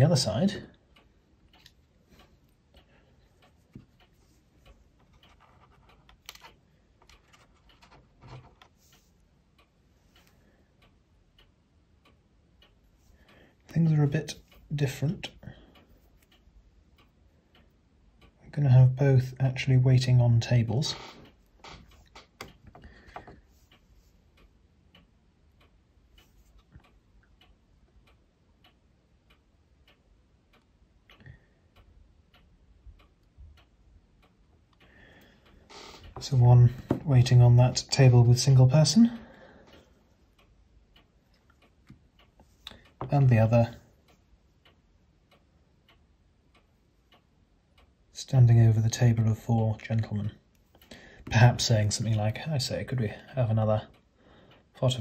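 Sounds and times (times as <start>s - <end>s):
faint even ticking: 0.0s - 55.0s
small clicks and taps on wood: 3.6s - 9.1s, 21.0s - 23.6s, 35.7s - 37.2s.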